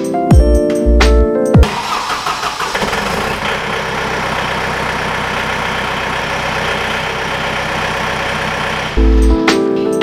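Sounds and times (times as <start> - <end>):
diesel engine idling: 1.6 - 9.4.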